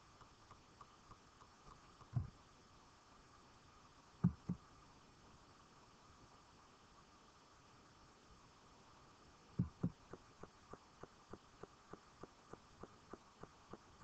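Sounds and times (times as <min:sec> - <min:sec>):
faint ticking: 0:00.0 - 0:02.5, 0:09.6 - 0:14.0.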